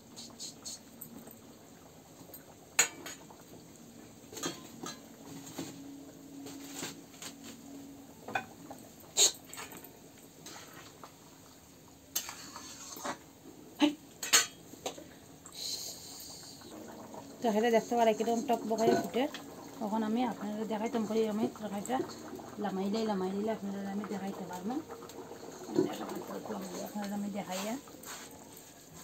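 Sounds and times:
metal spatula scraping a pan: 10.4s - 10.9s, 12.1s - 13.3s.

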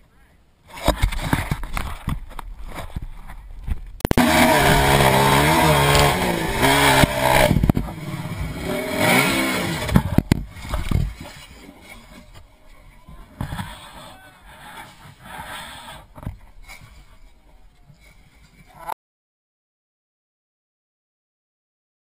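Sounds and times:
quad engine revving: 4.1s - 12.4s.

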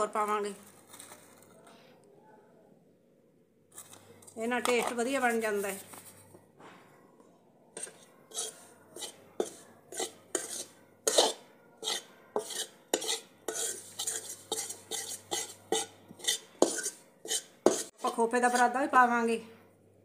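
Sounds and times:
metal spoon scraping metal pan: 7.8s - 19.0s.

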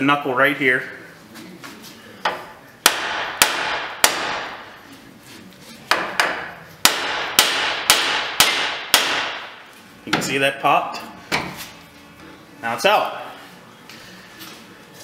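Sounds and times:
hammer striking metal: 2.8s - 4.6s, 5.9s - 9.6s.

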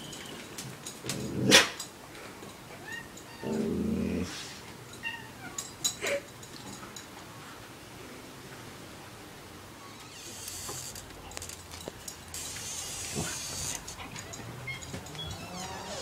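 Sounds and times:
short high squeaks: 9.8s - 11.1s, 12.3s - 16.0s.

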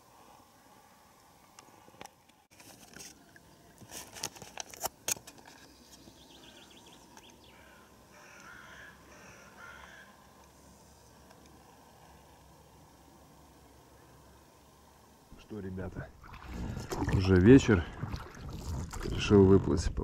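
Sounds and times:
faint bird calling: 6.2s - 10.4s.

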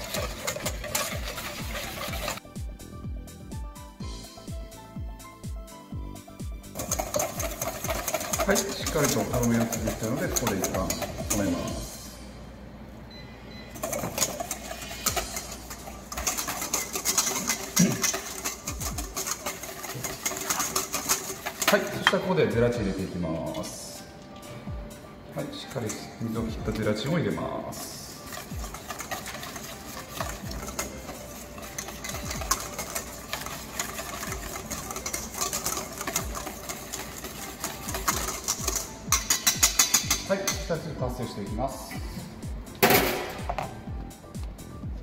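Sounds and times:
whisk clicking against metal bowl: 0.0s - 2.4s, 6.7s - 11.8s, 13.8s - 22.5s, 25.7s - 27.4s, 28.1s - 41.3s.

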